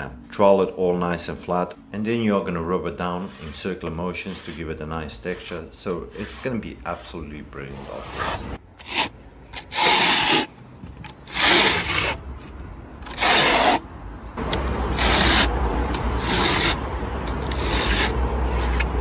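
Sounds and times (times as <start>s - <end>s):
trowel scraping render on wall: 2.8s - 10.5s, 11.2s - 12.2s, 13.0s - 13.8s, 14.8s - 16.8s, 17.4s - 18.9s.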